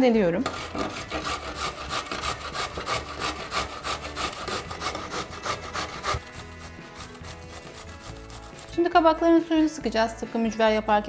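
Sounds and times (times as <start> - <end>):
grater rasping: 0.4 - 9.1.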